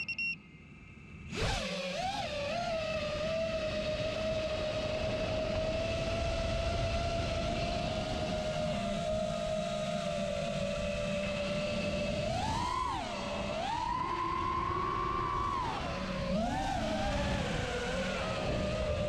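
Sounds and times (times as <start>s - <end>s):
quadcopter motors whining: 1.3s - 19.0s.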